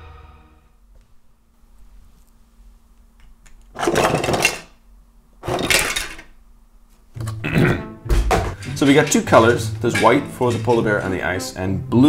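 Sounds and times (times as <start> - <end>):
plastic parts clattering onto table: 3.8 - 4.7, 5.4 - 6.3.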